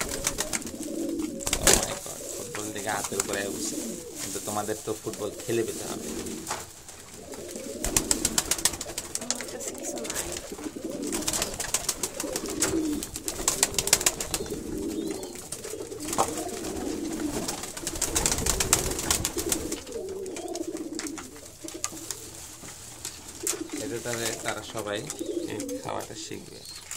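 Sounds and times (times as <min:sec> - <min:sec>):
pigeons cooing: 0:00.0 - 0:26.9
wings flapping and scuffling: 0:00.0 - 0:26.9.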